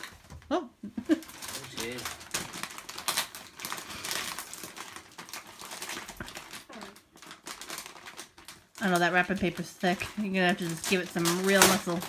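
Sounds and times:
foil gift wrap crinkling and tearing: 0:00.0 - 0:00.4, 0:01.0 - 0:12.0.

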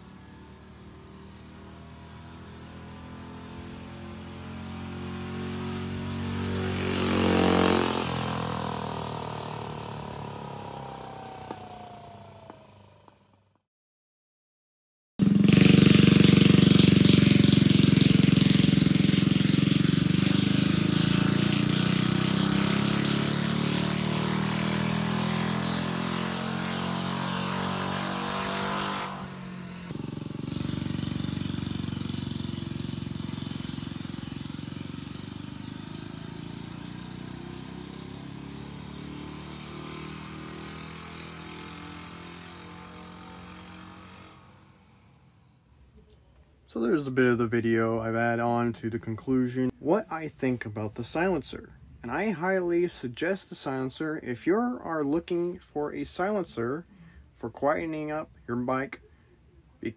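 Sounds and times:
mini bike engine running: 0:00.0 - 0:13.4, 0:15.2 - 0:44.8.

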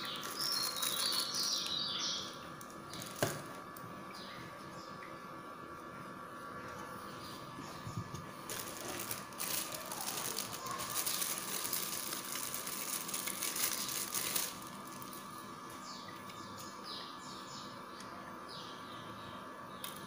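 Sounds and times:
plastic packaging crinkling: 0:00.0 - 0:01.8, 0:02.6 - 0:03.5, 0:08.3 - 0:15.4
faint steady hum: 0:00.0 - 0:20.0.

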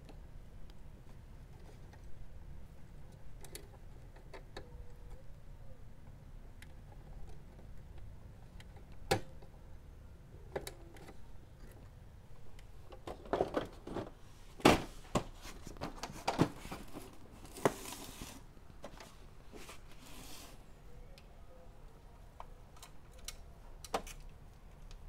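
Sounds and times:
rustling: 0:13.4 - 0:20.7.

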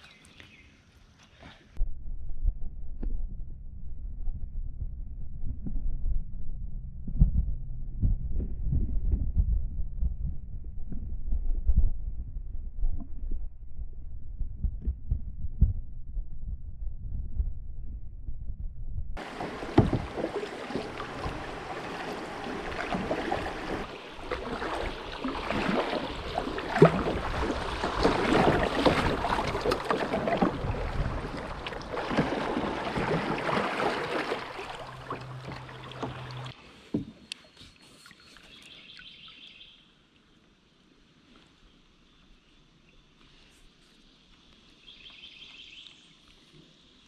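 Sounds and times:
low muffled rumble: 0:01.8 - 0:33.3
water rushing and splashing: 0:19.2 - 0:36.6
kayak knocks: 0:19.2 - 0:37.2.

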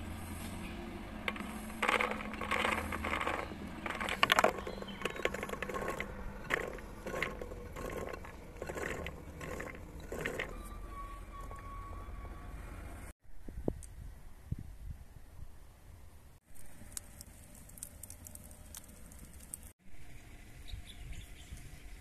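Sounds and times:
chickpeas clattering into clay pot: 0:01.3 - 0:10.5.

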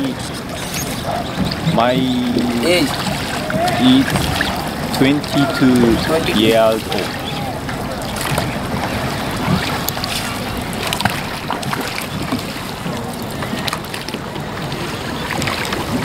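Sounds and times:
water washing: 0:00.0 - 0:16.0
wooden oars knocking: 0:00.4 - 0:10.3.

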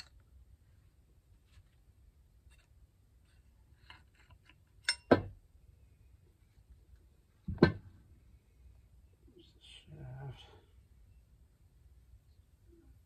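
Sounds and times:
metal parts ticking and scraping: 0:02.4 - 0:05.1.

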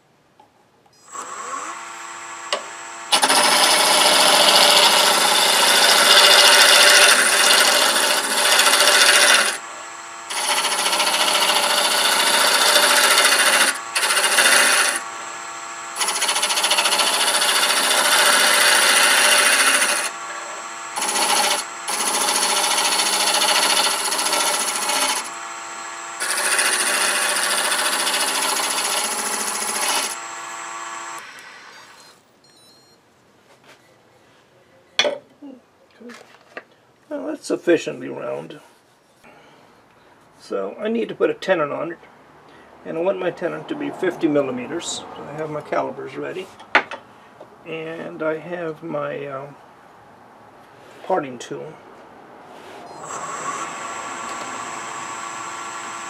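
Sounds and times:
turning tool rasping on wood: 0:01.2 - 0:31.3
lathe motor hum: 0:01.2 - 0:32.0, 0:52.9 - 0:56.0.

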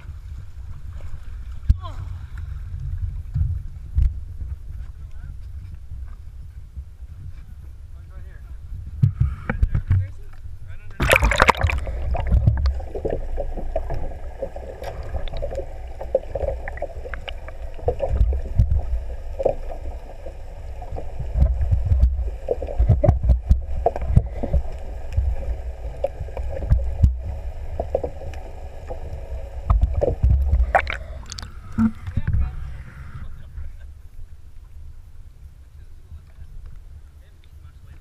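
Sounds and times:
underwater rumble of moving water: 0:00.0 - 0:38.0
water splash: 0:10.9 - 0:28.3, 0:28.9 - 0:32.4.

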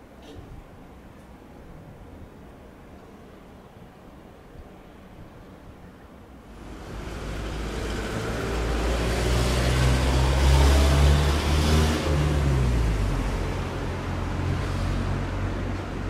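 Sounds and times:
vehicle passing by: 0:06.5 - 0:16.0.

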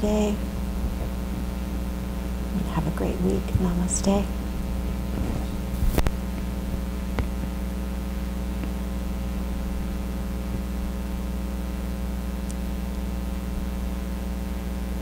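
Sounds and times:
electrical mains hum: 0:00.0 - 0:15.0
brief rustle: 0:05.1 - 0:06.2.

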